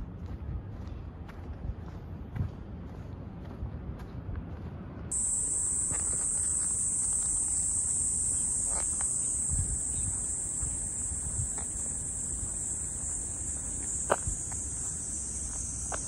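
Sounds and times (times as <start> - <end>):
footsteps on a path: 0.0 - 16.0
high-pitched insect drone: 5.1 - 16.0.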